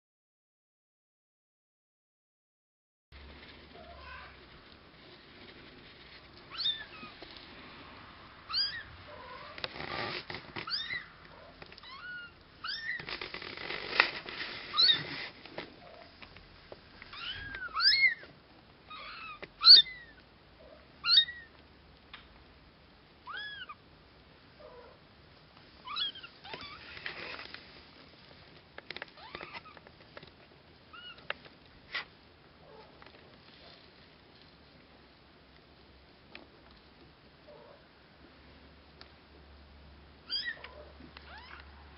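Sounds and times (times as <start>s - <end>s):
soft rustling: 3.2s - 18.4s, 25.4s - 35.1s.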